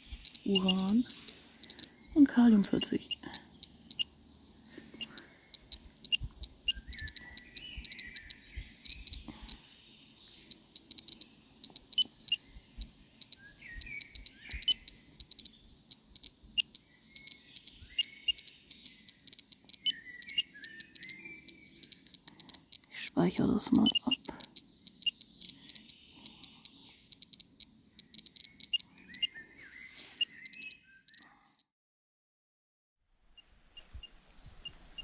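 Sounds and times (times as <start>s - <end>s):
radiation detector ticking: 0.0s - 4.2s, 4.9s - 9.6s, 10.2s - 29.3s, 30.2s - 31.2s
short falling bird calls: 23.9s - 31.5s.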